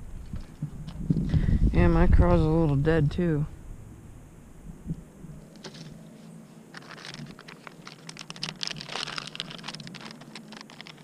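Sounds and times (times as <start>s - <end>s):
plastic packet crinkling: 6.7s - 11.0s.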